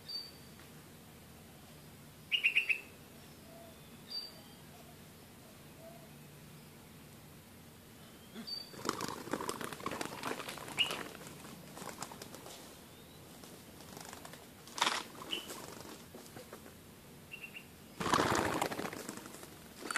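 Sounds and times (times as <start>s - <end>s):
birds scratching in dry litter: 8.7s - 12.8s, 13.4s - 16.4s, 18.0s - 19.9s
wings flapping: 8.7s - 12.8s, 13.4s - 16.8s, 18.0s - 19.9s.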